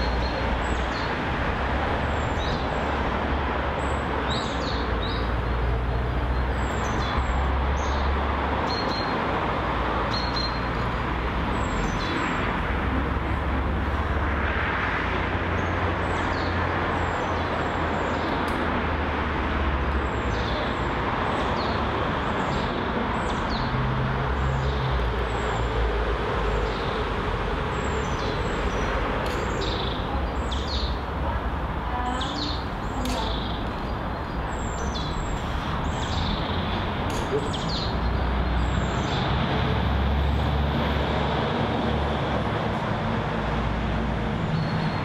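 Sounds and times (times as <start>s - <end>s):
small birds chirping: 19.9s - 39.4s.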